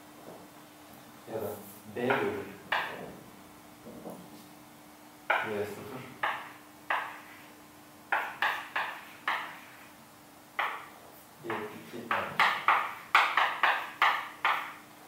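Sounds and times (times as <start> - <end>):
sharp taps on board: 8.1 - 9.6, 11.5 - 14.8.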